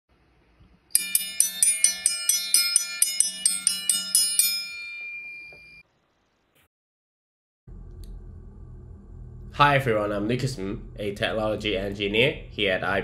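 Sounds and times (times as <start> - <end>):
bright struck notes jingle: 0.9 - 5.8.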